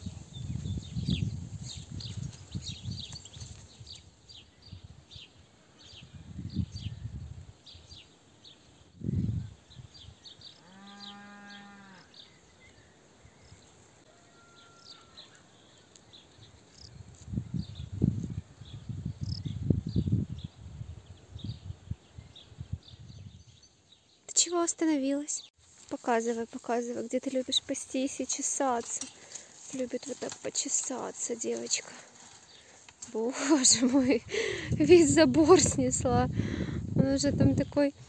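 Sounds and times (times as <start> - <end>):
wind buffeting microphone: 0.0 - 5.2, 6.0 - 8.0, 8.9 - 10.2, 16.9 - 23.6, 33.6 - 38.0
small birds chirping: 0.0 - 14.0, 14.6 - 38.0
farm animal call: 14.1 - 15.4.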